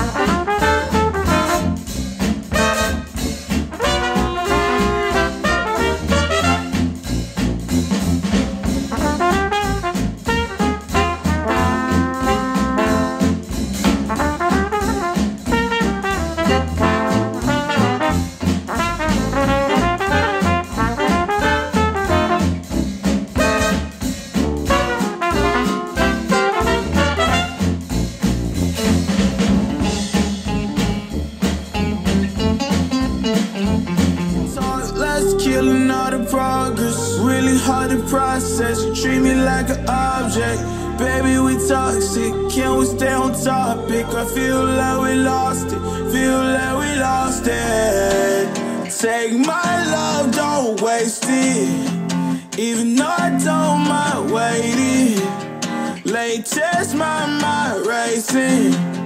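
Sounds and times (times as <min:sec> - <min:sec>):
jazz with trumpet and trombone: 0:00.0 - 0:48.9, 0:57.0 - 0:57.9
hip hop pop track: 0:34.4 - 0:59.0.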